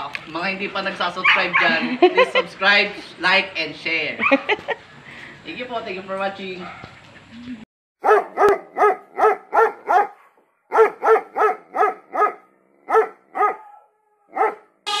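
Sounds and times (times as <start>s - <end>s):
dog barking: 1.2s - 1.8s, 4.2s - 4.5s, 6.6s - 6.9s, 8.0s - 14.7s.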